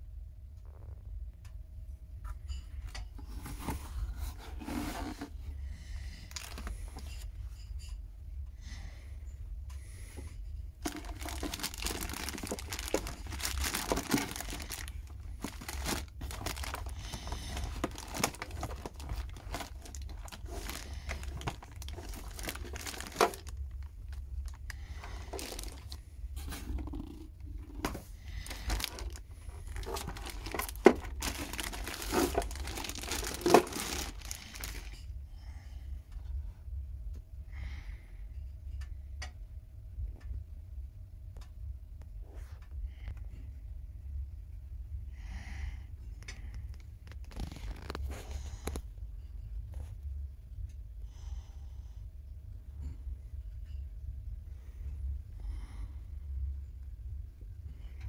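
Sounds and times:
plastic bag crinkling: 0:06.1 - 0:07.2, 0:10.8 - 0:35.1, 0:47.0 - 0:48.8.

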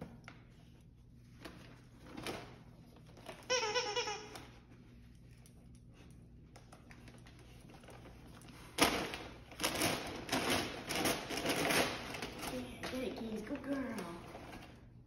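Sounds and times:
dogs ripping wrapping paper: 0:06.8 - 0:14.8.

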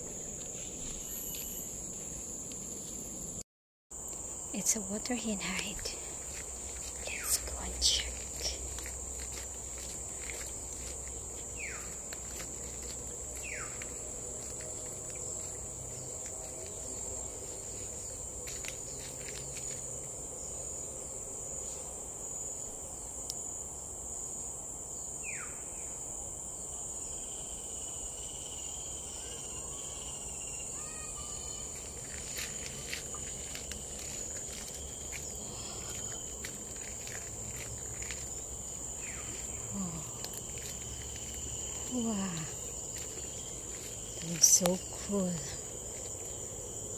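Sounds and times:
footsteps on dirt path: 0:00.0 - 0:03.1, 0:05.4 - 0:20.2, 0:31.4 - 0:46.6
insects droning: 0:00.0 - 0:46.9.

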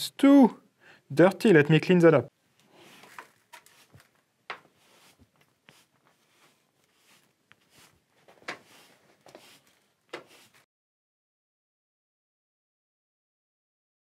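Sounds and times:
broom sweeping on stone: 0:02.7 - 0:10.7.

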